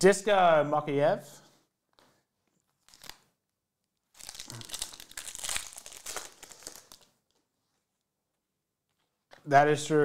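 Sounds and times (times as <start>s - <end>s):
foil wrapper crinkling: 2.7s - 3.3s, 4.1s - 7.4s.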